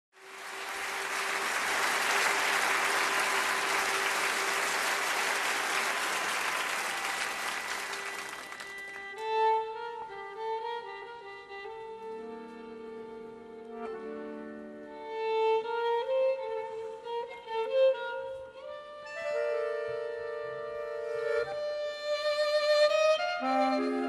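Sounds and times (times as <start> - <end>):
audience applause: 0.2 - 9.2
accordion: 7.3 - 24.0
violin: 7.9 - 24.0.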